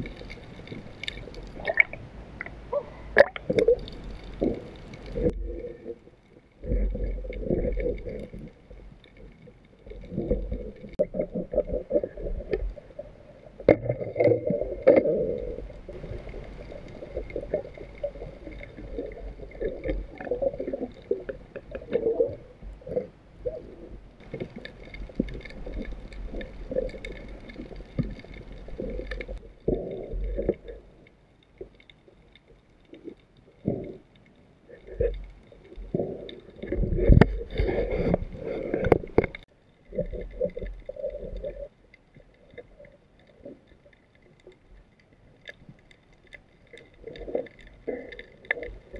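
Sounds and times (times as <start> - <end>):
underwater gurgling and sloshing: 0.0 - 48.9.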